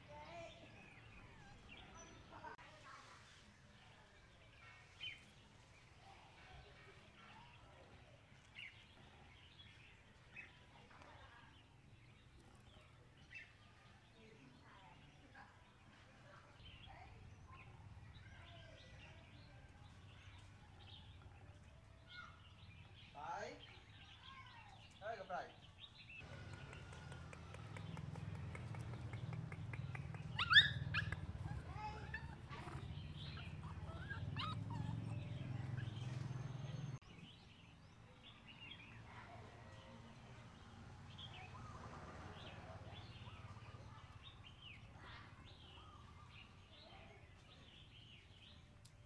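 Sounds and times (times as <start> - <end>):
short chirping calls: 26.0 - 37.3
young animals whimpering: 26.5 - 36.9.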